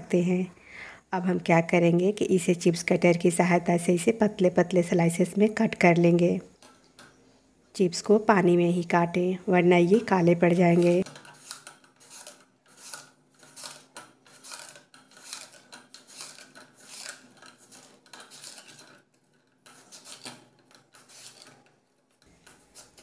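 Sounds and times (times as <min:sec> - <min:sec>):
potato slicing scrapes: 0:09.9 - 0:19.0, 0:19.6 - 0:21.7, 0:22.4 - 0:23.0.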